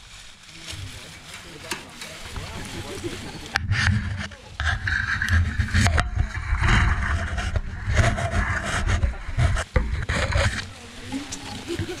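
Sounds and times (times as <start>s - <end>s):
scraping and rustling: 0.0s - 12.0s
heavy low rumble: 3.6s - 10.8s.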